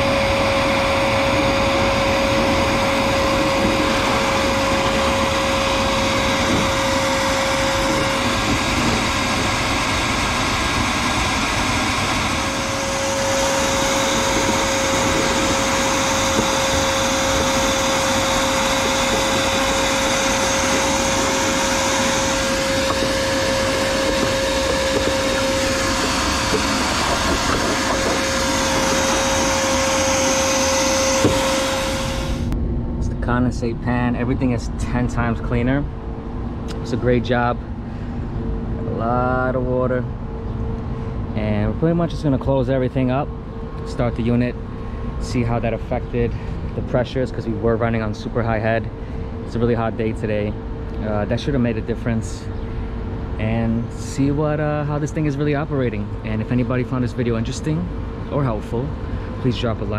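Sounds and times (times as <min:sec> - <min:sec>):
hose sucking water and debris: 0:00.0 - 0:32.6
shop vacuum running with whine: 0:00.0 - 0:59.9.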